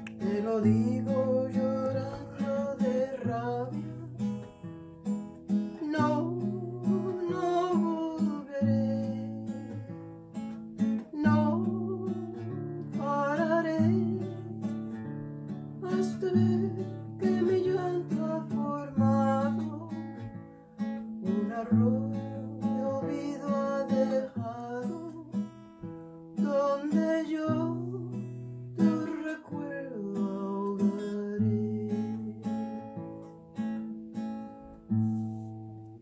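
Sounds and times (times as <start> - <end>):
acoustic guitar strumming: 0.0 - 36.0
woman singing: 0.1 - 4.3, 5.7 - 10.0, 11.0 - 14.7, 15.8 - 20.0, 21.3 - 25.4, 26.4 - 32.5.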